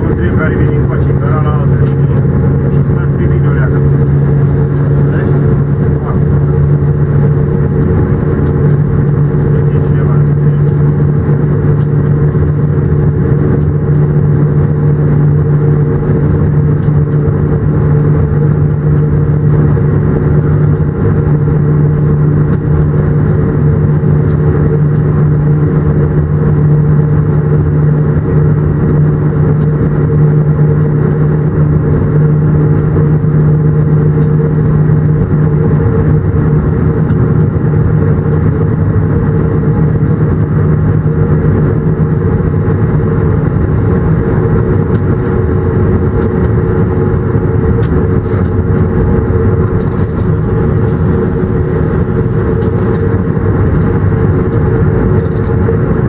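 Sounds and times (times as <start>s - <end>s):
locomotive cab drone: 0.0s - 56.0s.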